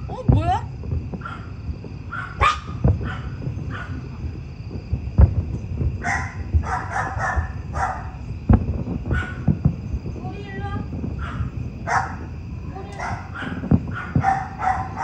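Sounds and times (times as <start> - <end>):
distant fireworks booming: 0.0 - 15.0
dog barking: 1.2 - 1.5, 2.1 - 4.1, 6.0 - 8.2, 9.1 - 9.5, 11.2 - 12.3, 12.9 - 15.0.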